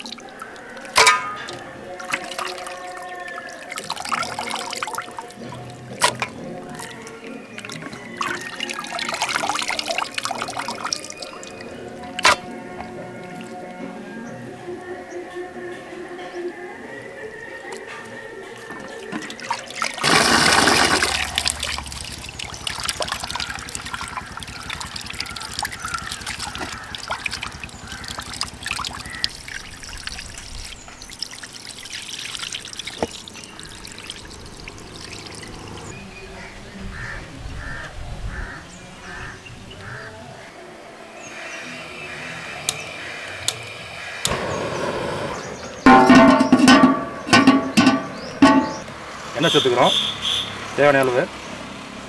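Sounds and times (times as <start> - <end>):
water pouring and sloshing: 0.0 - 14.0, 17.4 - 36.2, 45.8 - 49.4
water trickling: 0.0 - 14.4, 17.5 - 37.1.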